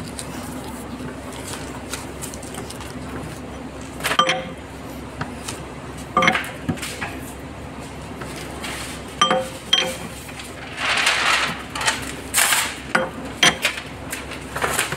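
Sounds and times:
steady machine hum: 0.0s - 14.9s
steel tool clanking on metal: 4.2s - 4.6s, 9.2s - 10.2s.

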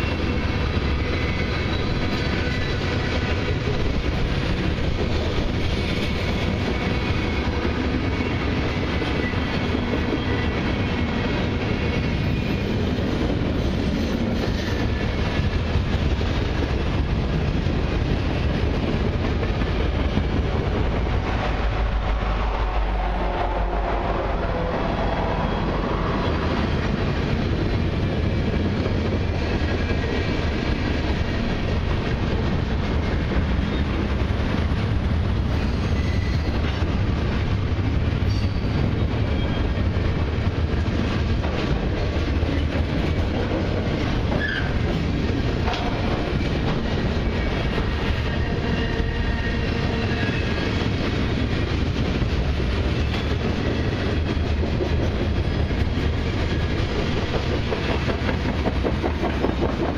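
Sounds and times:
diesel locomotive engine passing: 0.0s - 59.9s
freight train wheel clatter: 25.6s - 59.9s.

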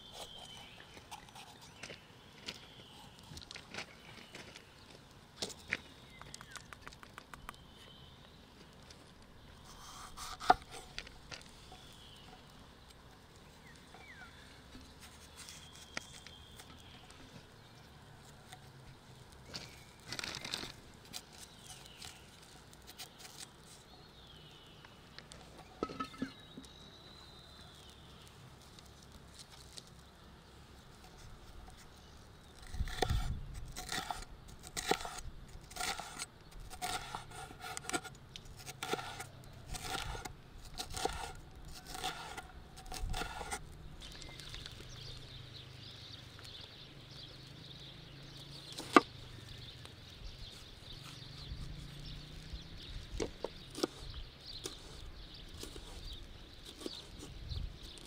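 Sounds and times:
knife slicing on wooden board: 9.8s - 10.8s, 36.8s - 43.6s.

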